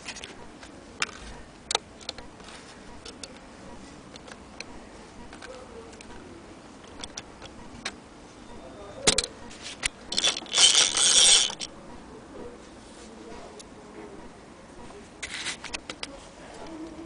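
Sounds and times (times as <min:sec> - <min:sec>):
sewing machine metallic rattling: 0:10.1 - 0:11.7.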